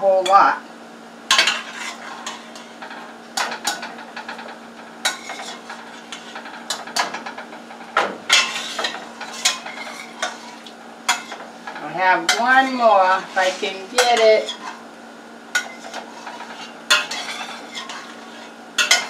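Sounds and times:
utensil clinking in metal pot: 18.8s - 19.0s.

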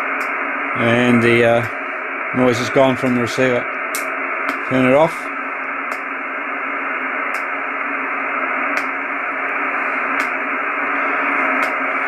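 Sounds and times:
radio receiver hiss: 0.0s - 12.0s
sharp electric clicks: 5.9s - 6.1s, 7.3s - 7.5s, 8.7s - 9.0s, 10.2s - 10.4s.

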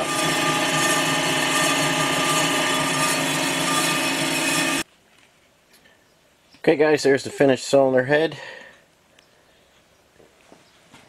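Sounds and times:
surfacing machine droning: 0.0s - 4.8s.

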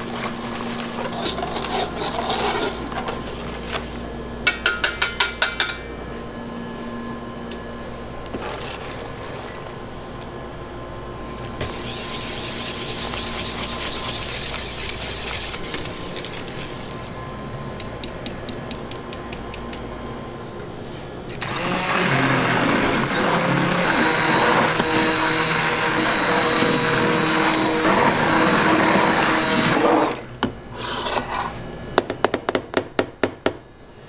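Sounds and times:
whisk in a steel pot: 11.6s - 17.1s, 21.4s - 30.2s
immersion blender running: 21.3s - 30.3s.

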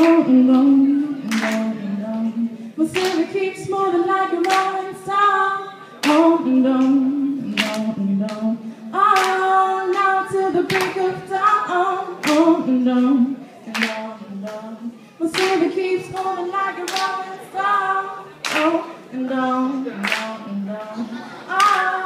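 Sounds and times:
woman singing: 0.0s - 22.0s
hand claps: 1.3s - 1.7s, 3.0s - 3.3s, 7.6s - 8.4s, 9.2s - 10.0s, 10.7s - 11.0s, 12.2s - 12.5s, 13.7s - 14.6s, 15.3s - 16.3s, 16.9s - 17.2s, 18.4s - 18.8s, 20.0s - 20.4s.

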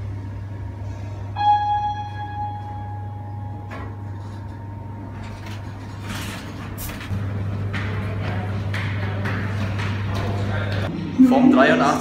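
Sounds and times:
lift cabin hum: 0.0s - 10.9s
electronic chime: 1.4s - 3.8s.

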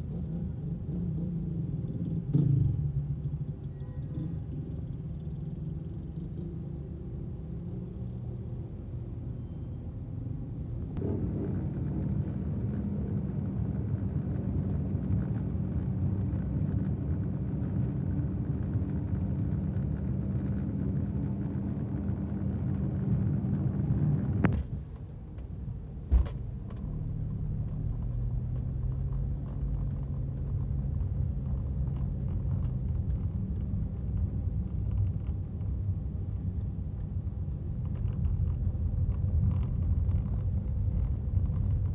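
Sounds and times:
car engine and road rumble: 0.0s - 41.9s
thump: 26.1s - 26.5s.

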